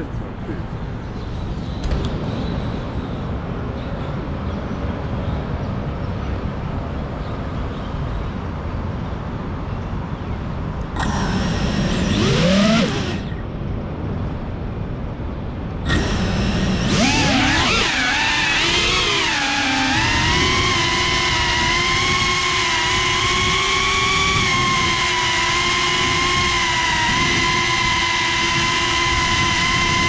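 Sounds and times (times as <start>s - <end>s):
city traffic rumble: 0.0s - 17.9s
gliding pitch siren-like sound: 11.0s - 13.4s, 15.9s - 30.0s.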